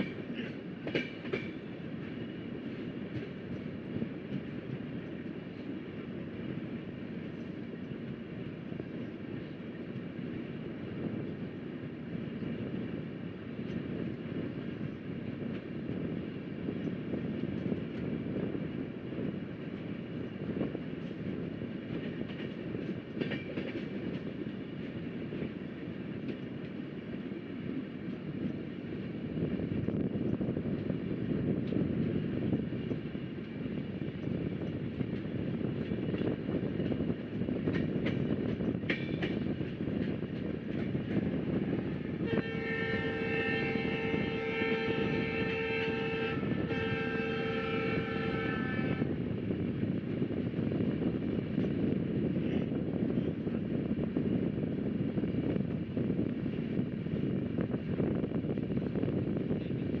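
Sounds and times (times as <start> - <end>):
train wheels rumbling on track: 0.0 - 60.0
train horn blasts: 42.2 - 49.1.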